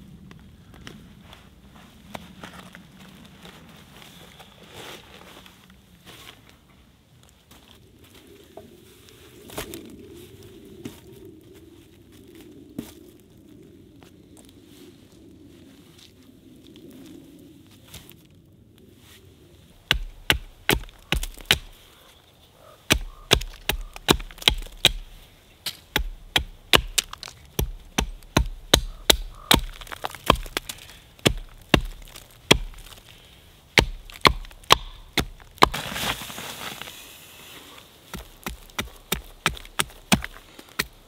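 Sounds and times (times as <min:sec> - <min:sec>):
wood being chopped: 0:19.8 - 0:21.8, 0:22.9 - 0:33.0, 0:33.8 - 0:36.4, 0:38.1 - 0:41.0.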